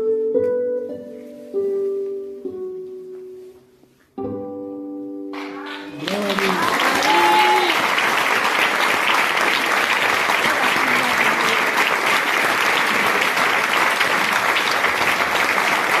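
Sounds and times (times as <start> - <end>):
audience applauding: 5.4 - 16.0.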